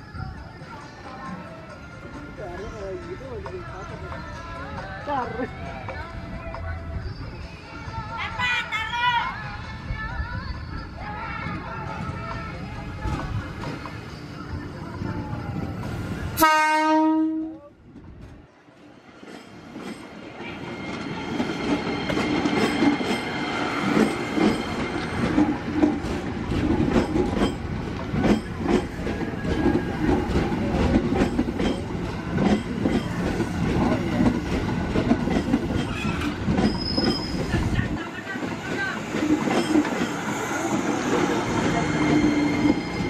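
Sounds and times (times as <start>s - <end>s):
train horn: 16.4s - 17.7s
train wheels clattering over rail joints: 21.0s - 37.8s.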